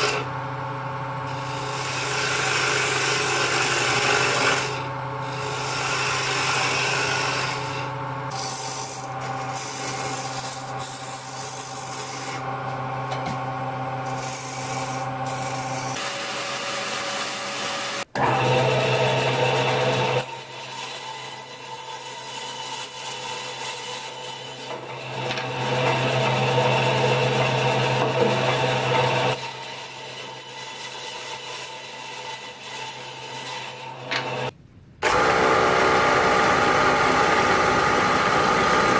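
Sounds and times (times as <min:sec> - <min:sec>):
bandsaw cutting wood: 0:00.0 - 0:00.3, 0:01.3 - 0:12.7, 0:14.0 - 0:38.9
wood lathe motor hum: 0:01.3 - 0:20.3, 0:24.6 - 0:29.4, 0:33.9 - 0:38.9
gouge scraping wood: 0:27.3 - 0:29.2.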